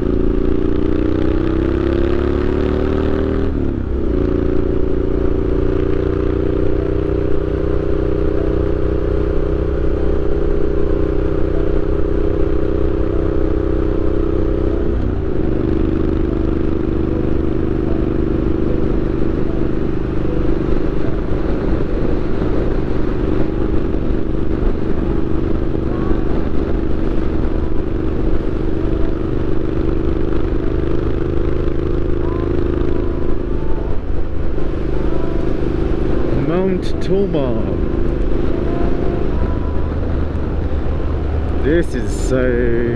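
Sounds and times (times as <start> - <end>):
motorcycle engine cruising: 0.0 - 42.9.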